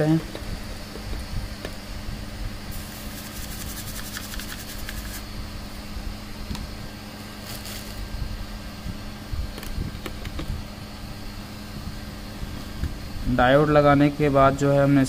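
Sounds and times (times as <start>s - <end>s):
steady background hum: 0.0s - 15.0s
scratchy scrubbing on circuit board: 2.7s - 5.2s.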